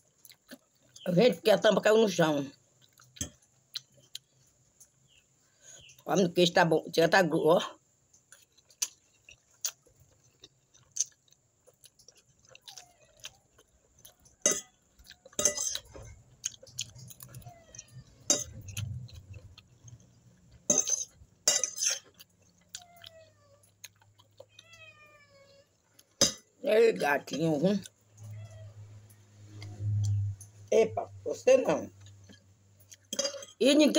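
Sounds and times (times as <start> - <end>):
chewing and mouth noises: 0.0 - 1.1, 2.7 - 5.2, 8.1 - 26.4, 31.9 - 33.3
cat meowing: 12.6 - 13.4, 17.2 - 18.7, 22.8 - 23.8, 24.4 - 25.8, 28.2 - 28.9.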